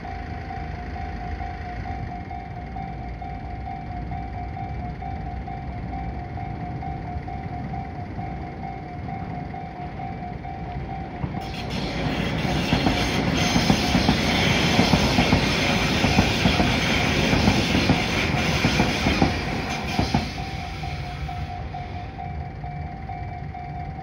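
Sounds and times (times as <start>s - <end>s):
train rumbling past: 6.0s - 24.0s.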